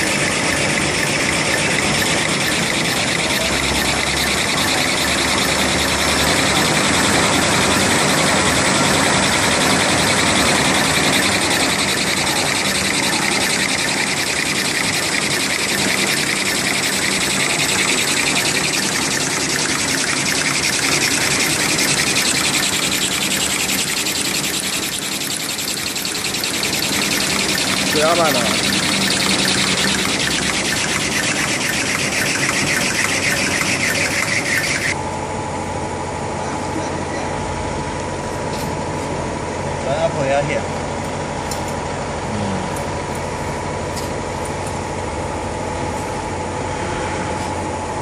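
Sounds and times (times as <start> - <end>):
paper machine whirring: 0.0 - 35.0
high steady whine: 0.0 - 41.4.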